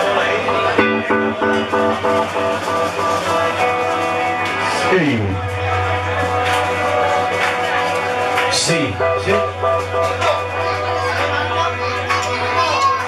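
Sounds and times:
guitar chords: 0:00.0 - 0:13.0
low held bass note: 0:00.5 - 0:03.9, 0:08.8 - 0:13.0.

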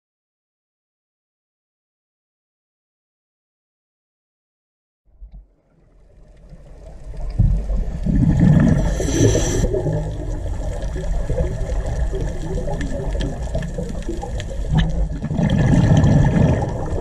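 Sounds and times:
underwater rumbling wash: 0:05.3 - 0:17.0
hiss of bubbles: 0:06.5 - 0:17.0.

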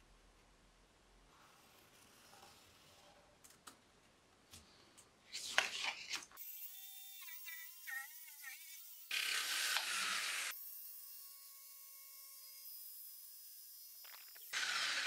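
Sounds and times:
jigsaw running: 0:06.9 - 0:10.6, 0:14.1 - 0:15.0.

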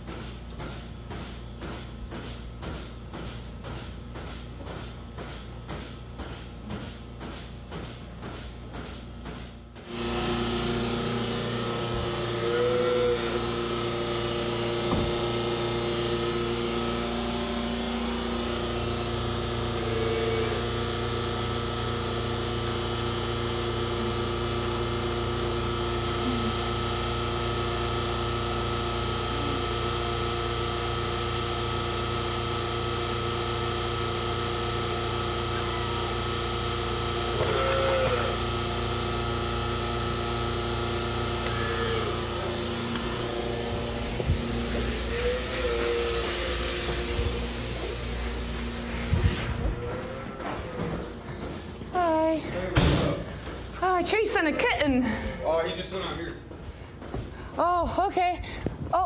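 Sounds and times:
machine hum with held tones: 0:09.8 - 0:56.9.

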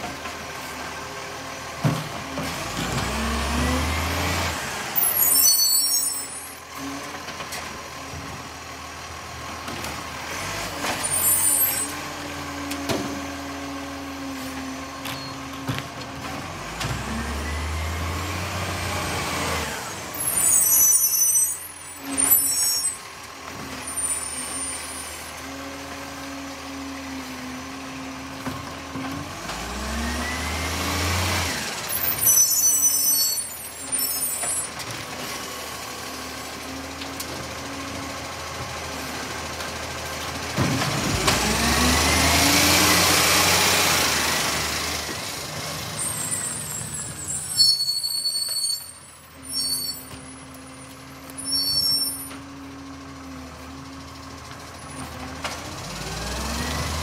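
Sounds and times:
truck engine revving: 0:02.4 - 0:05.0, 0:16.4 - 0:20.6, 0:29.3 - 0:32.2, 0:40.3 - 0:47.4, 0:55.1 - 0:57.0.

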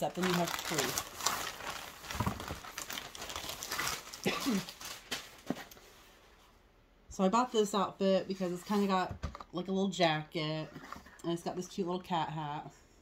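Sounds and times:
plastic mailer rustling and crinkling: 0:00.0 - 0:05.9.

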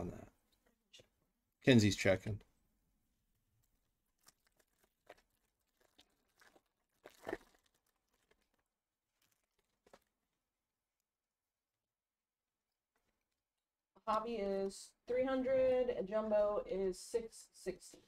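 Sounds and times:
crinkling wrapper tearing: 0:04.1 - 0:10.4.

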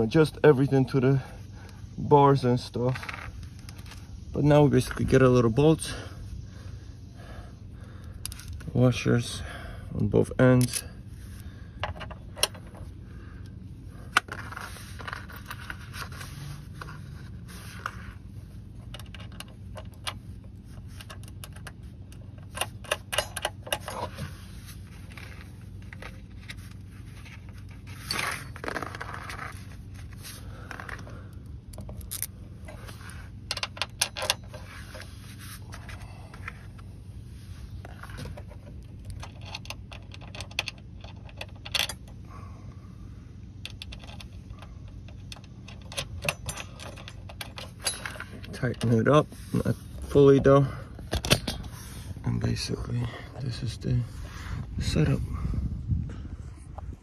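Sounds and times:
bolts clinking on metal bracket: 0:10.2 - 0:11.0, 0:11.8 - 0:13.5, 0:14.1 - 0:17.0, 0:18.6 - 0:24.4, 0:25.0 - 0:35.1, 0:37.9 - 0:42.2, 0:43.6 - 0:51.8.

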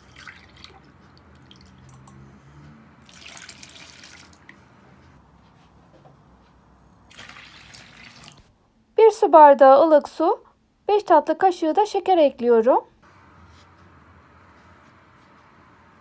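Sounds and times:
liquid pouring into a bowl: 0:00.0 - 0:02.2, 0:03.0 - 0:04.6, 0:07.1 - 0:08.5.

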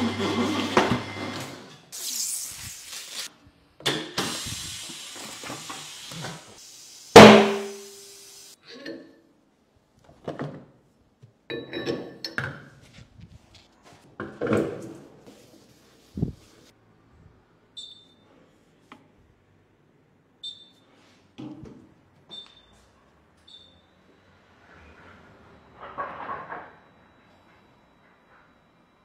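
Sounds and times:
pneumatic tyre changer hissing: 0:04.2 - 0:08.6
loud metallic clank: 0:07.2 - 0:07.8.

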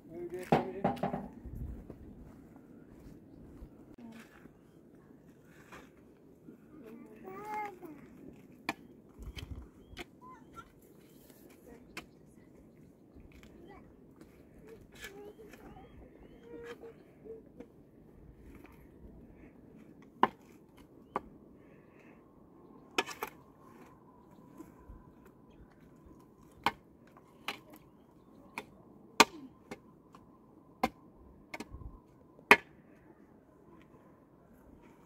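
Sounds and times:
shovel digging stony earth: 0:22.9 - 0:23.9.

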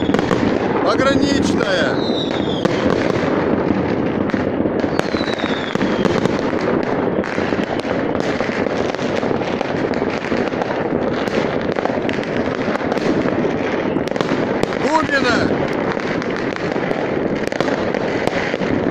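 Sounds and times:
falling firework whistle: 0:00.0 - 0:00.4, 0:01.7 - 0:03.2, 0:04.8 - 0:06.5
fireworks bangs and crackling: 0:00.0 - 0:18.9.

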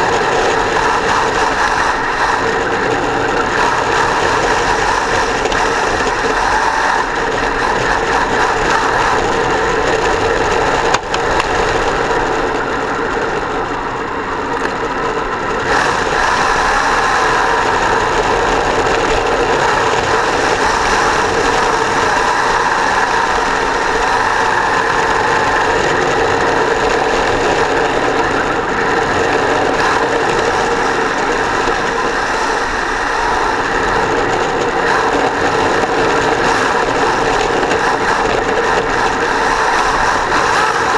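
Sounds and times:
electric motor whining: 0:00.0 - 0:40.9
tyre noise on asphalt: 0:00.0 - 0:40.9.

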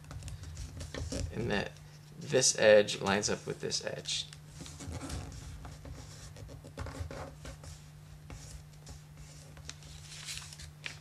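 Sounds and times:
steady low hum: 0:00.0 - 0:11.0
paper rustling: 0:08.5 - 0:11.0
fingers scraping paper fold: 0:08.8 - 0:11.0.

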